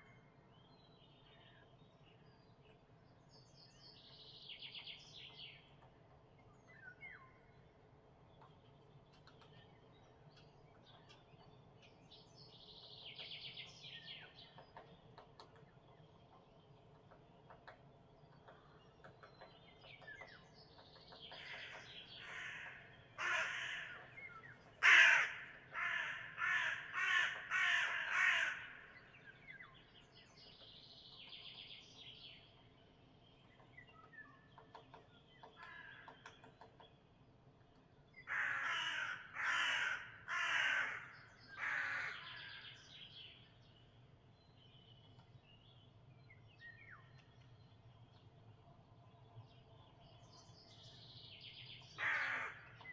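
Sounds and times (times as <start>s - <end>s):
small birds chirping: 0.0s - 52.9s
crow cawing: 21.4s - 24.1s, 24.8s - 28.9s, 38.3s - 42.4s, 52.0s - 52.7s.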